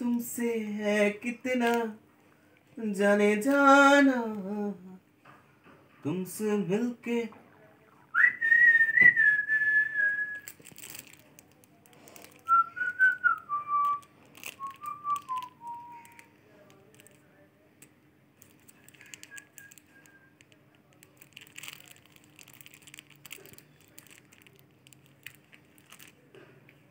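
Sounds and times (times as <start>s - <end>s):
person whistling: 8.1s - 10.5s, 12.5s - 14.0s, 14.6s - 16.2s
plastic wrapper crinkling: 9.4s - 26.8s.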